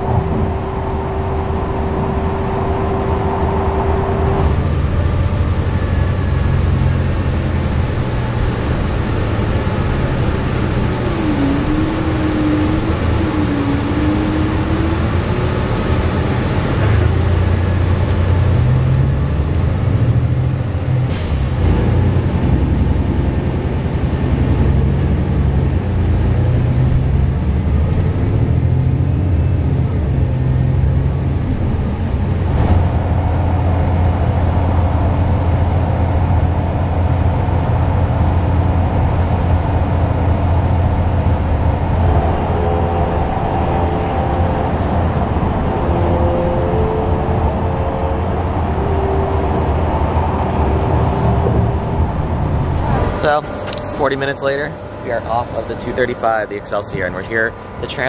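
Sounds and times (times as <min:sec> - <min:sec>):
bus engine drone: 0:00.0 - 0:58.0
road noise: 0:00.0 - 0:58.0
high steady tone: 0:52.6 - 0:58.0.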